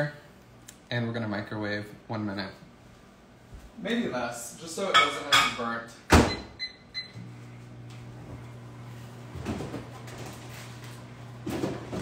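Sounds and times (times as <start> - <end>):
microwave humming: 6.0 - 12.0
microwave keypad beeping: 6.3 - 7.2.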